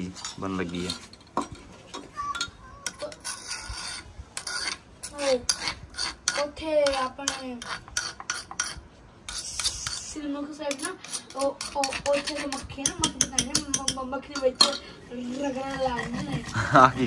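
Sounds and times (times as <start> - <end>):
pestle grinding in stone mortar: 2.8 - 10.1, 10.7 - 14.6.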